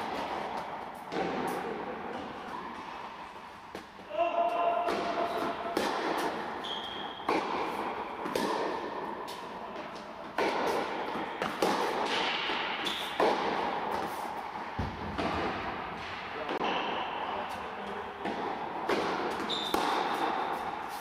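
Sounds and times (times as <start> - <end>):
tennis ball bouncing on court: 0.0 - 2.9, 3.7 - 16.8, 18.2 - 21.0
racket hitting tennis ball: 0.0 - 21.0.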